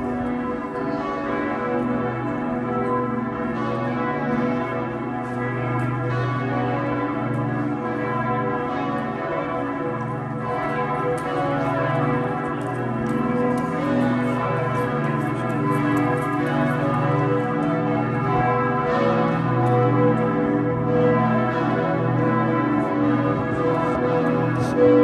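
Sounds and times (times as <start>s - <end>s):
church bells pealing: 0.0s - 25.0s.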